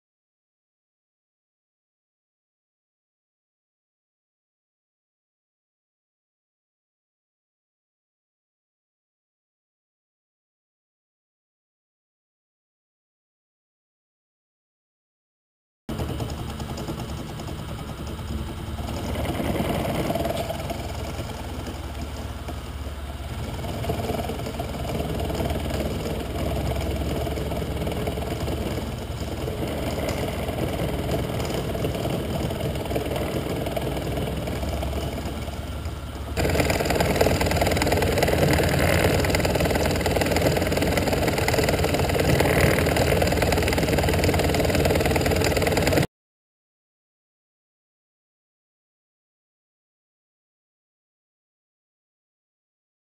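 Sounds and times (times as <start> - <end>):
end mill rasping through steel: 15.9 - 46.0
milling machine motor hum: 15.9 - 46.0.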